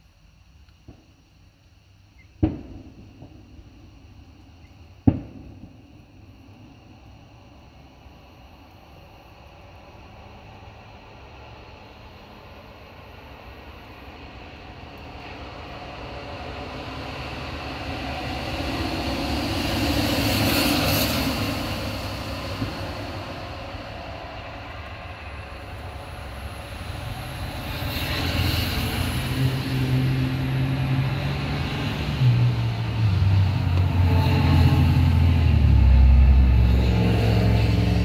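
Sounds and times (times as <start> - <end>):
low engine hum of vehicle: 14.7 - 38.0
vehicle passing by: 28.0 - 38.0.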